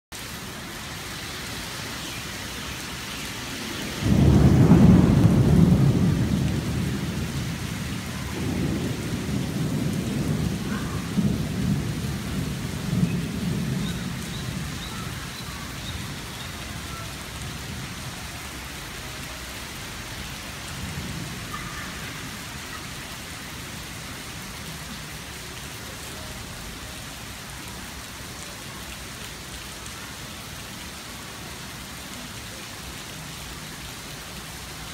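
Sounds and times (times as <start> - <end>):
heavy rain hissing: 0.2 - 34.9
thunder rumbling: 3.6 - 18.8.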